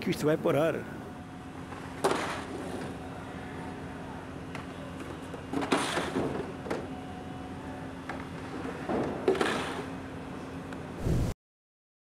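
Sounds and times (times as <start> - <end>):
plastic crates scraping and clattering: 5.5 - 6.5.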